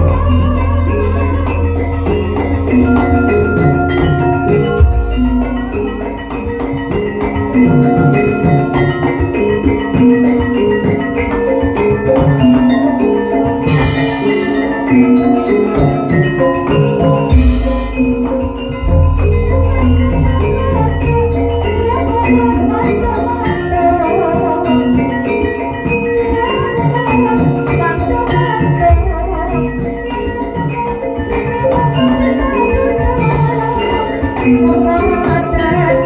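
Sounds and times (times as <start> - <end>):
metallophones and kettle gongs ringing: 1.3 - 11.5, 12.1 - 25.7
drum: 2.0 - 25.1.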